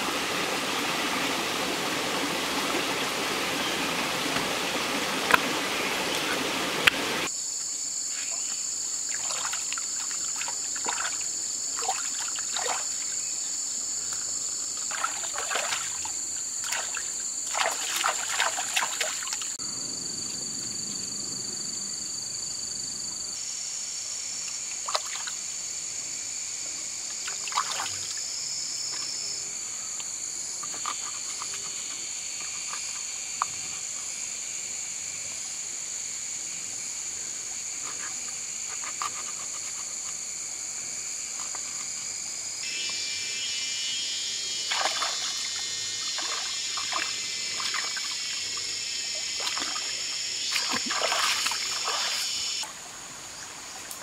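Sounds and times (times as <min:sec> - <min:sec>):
stream water trickling: 0:00.0 - 0:07.3, 0:09.0 - 0:19.6, 0:27.1 - 0:28.3, 0:44.7 - 0:54.0
insect chorus: 0:00.0 - 0:54.0
hands splashing in water: 0:09.1 - 0:11.2, 0:14.9 - 0:19.5, 0:44.7 - 0:45.5, 0:46.2 - 0:48.2, 0:49.4 - 0:49.9, 0:50.5 - 0:52.4.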